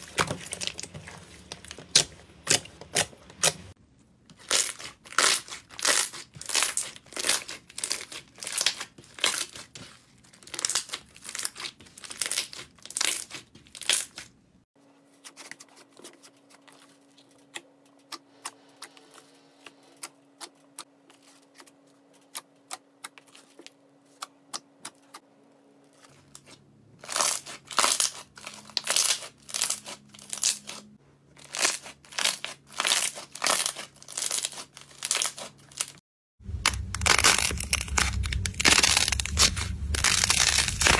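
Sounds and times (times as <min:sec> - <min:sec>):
slime popping and crackling: 0:04.4 - 0:09.6, 0:31.4 - 0:40.9.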